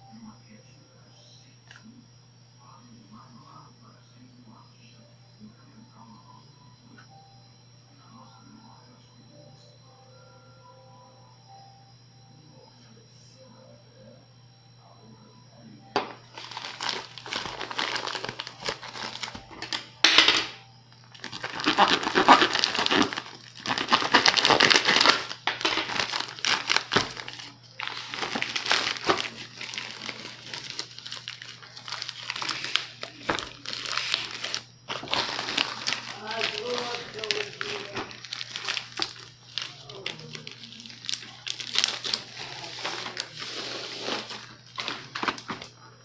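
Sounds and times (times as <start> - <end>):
plastic bag crinkling and tearing: 16.3 - 19.8, 21.1 - 45.7.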